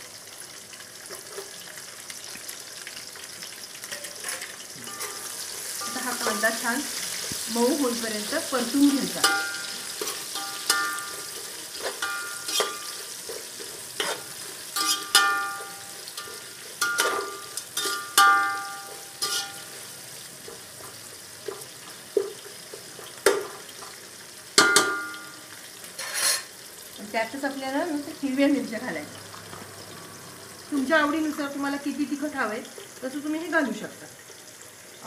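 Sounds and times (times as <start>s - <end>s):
onions sizzling in oil: 0.0s - 35.0s
metal spoon knocking a pot: 9.2s - 11.3s, 12.0s - 12.8s, 14.8s - 15.8s, 16.8s - 19.6s, 24.6s - 25.3s.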